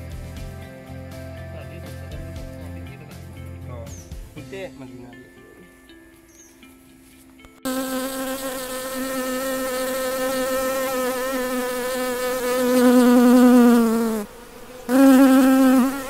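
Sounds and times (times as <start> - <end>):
bee buzzing: 7.6 - 16.0.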